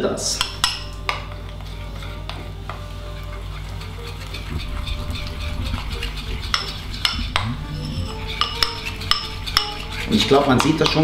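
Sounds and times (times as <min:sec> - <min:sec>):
fork scraping in bowl: 0:03.1 - 0:11.0.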